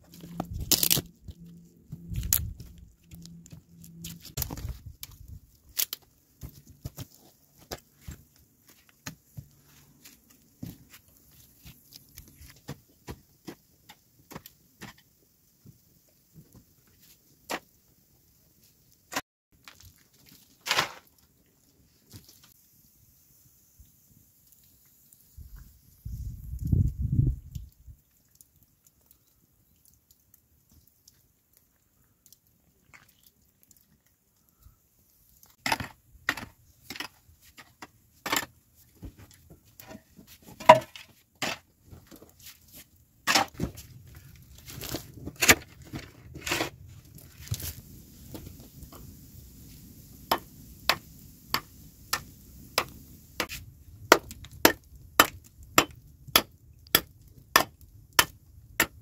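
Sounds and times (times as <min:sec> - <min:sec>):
hand tool striking rock: 0:50.3 - 0:59.0.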